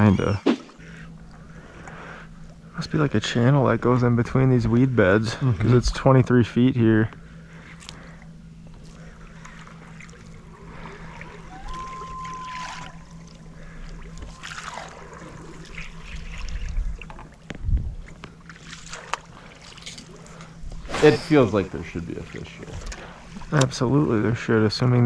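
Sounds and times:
steady low hum: 0:00.0 - 0:25.0
water lapping against boat hull: 0:07.2 - 0:23.9
short whistle-like tone: 0:11.5 - 0:13.1.

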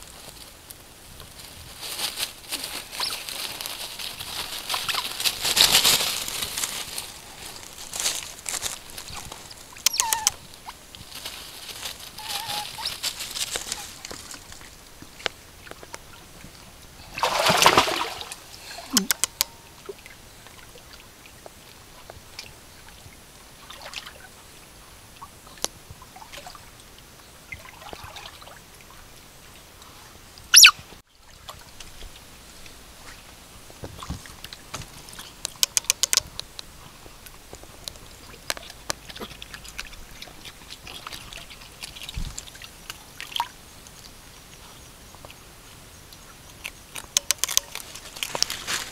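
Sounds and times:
water splashing: 0:01.9 - 0:21.0, 0:38.1 - 0:44.1.

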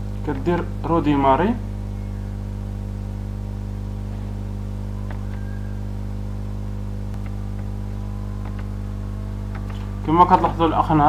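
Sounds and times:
buzzy electrical hum: 0:00.0 - 0:11.0
person speaking: 0:09.5 - 0:11.0.

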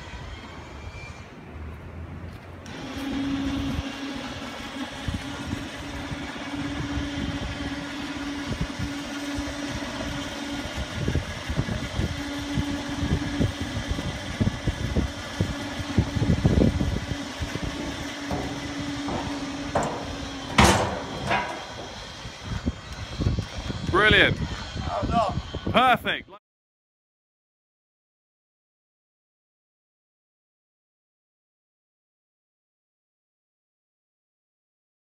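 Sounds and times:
crane humming: 0:00.0 - 0:25.8
knocks and bumps: 0:15.6 - 0:22.5
sharp metal clank: 0:17.8 - 0:22.2.

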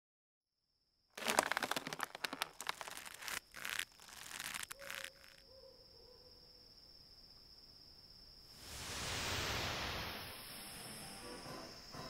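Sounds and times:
cricket trill: 0:00.8 - 0:12.0
dry crunching and crackling: 0:01.2 - 0:05.4.

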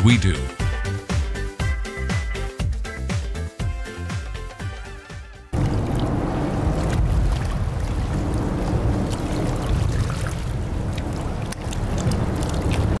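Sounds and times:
boat motor running: 0:05.6 - 0:13.0.

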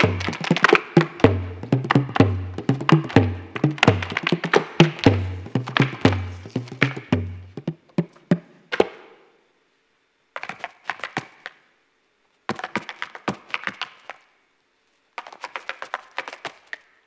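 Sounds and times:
deep accompanying note: 0:00.0 - 0:08.5
hard-shoe dance taps: 0:00.0 - 0:09.0.

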